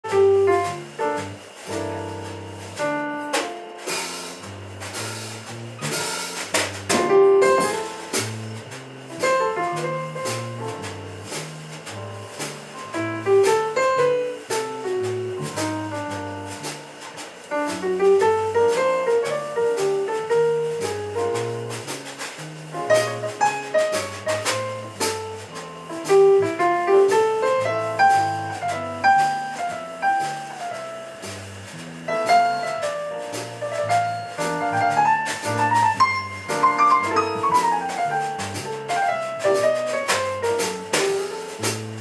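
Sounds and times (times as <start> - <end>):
electric bass: 0.0 - 42.0
drum cymbals keeping time: 0.1 - 42.0.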